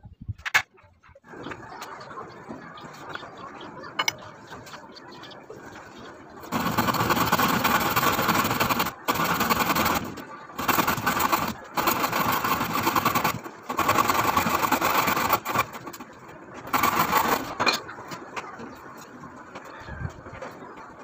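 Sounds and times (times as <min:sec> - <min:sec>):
handsaw cutting wood: 0:06.5 - 0:15.7.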